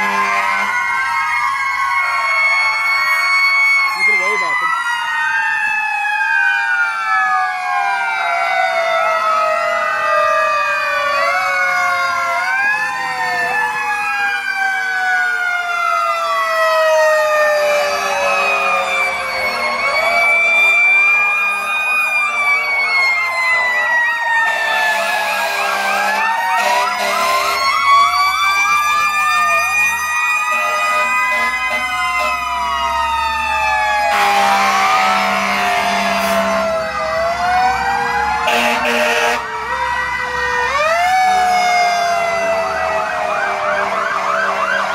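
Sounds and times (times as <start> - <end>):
harsh horn blasts: 0.0 - 0.7, 24.5 - 27.6, 30.5 - 32.5, 34.1 - 36.6, 38.4 - 39.4
fire truck sirens wailing: 0.0 - 44.9
truck engines rumbling: 0.0 - 44.9.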